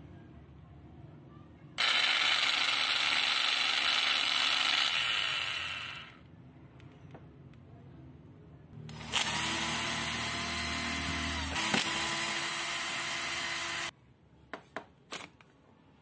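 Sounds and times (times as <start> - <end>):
power screwdriver running: 1.8 - 6.2, 8.9 - 13.9.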